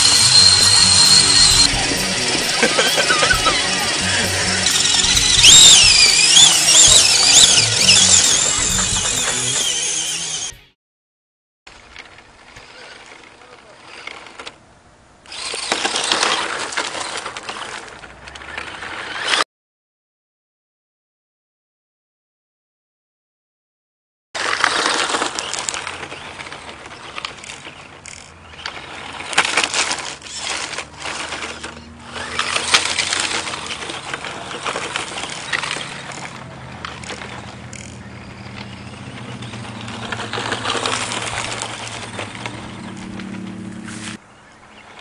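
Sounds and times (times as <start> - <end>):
electric motor hum: 0.0 - 10.6, 29.8 - 44.2
pebbles rattling against car: 24.4 - 43.4
tyres crunching on gravel: 24.4 - 44.2.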